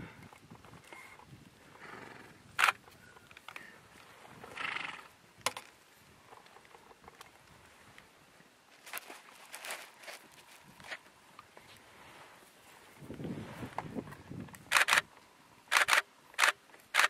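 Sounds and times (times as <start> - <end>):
camera shutter clicks: 2.6 - 2.8, 14.7 - 15.1, 15.7 - 17.0.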